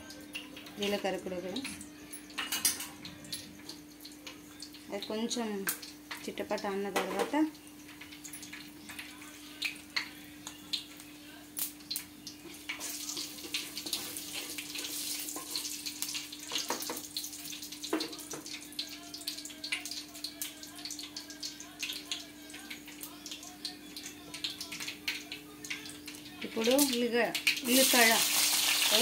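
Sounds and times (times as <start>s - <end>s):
oil sizzling: 0.0s - 29.0s
seeds popping in hot oil: 11.6s - 29.0s.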